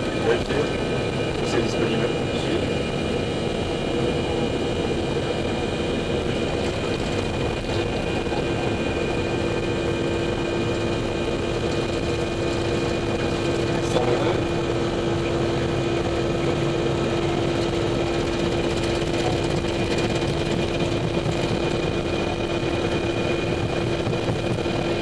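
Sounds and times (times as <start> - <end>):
aircraft cockpit engine hum: 0.0 - 25.0.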